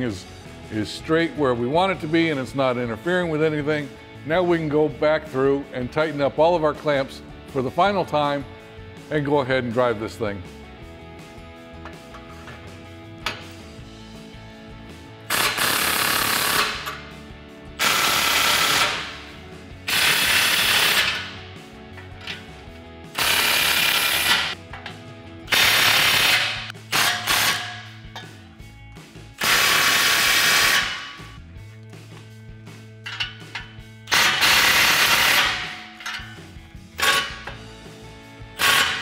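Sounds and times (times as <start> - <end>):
faint background music: 0.0 - 39.0
impact wrench hammering: 15.3 - 17.0, 17.8 - 19.3, 19.9 - 21.4, 23.1 - 28.4, 29.4 - 31.4, 33.0 - 37.6, 38.6 - 39.0.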